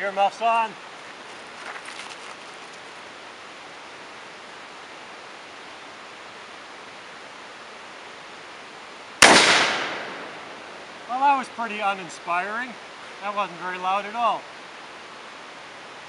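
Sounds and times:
background hiss: 0.0 - 16.0
rifle shot: 9.2 - 10.8.

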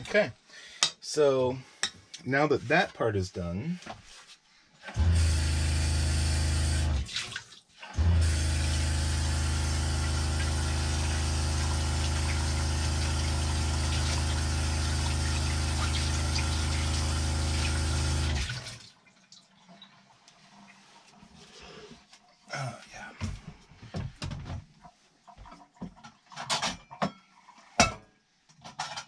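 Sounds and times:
water pump humming: 4.9 - 19.0
faucet running into sink: 6.7 - 20.5.

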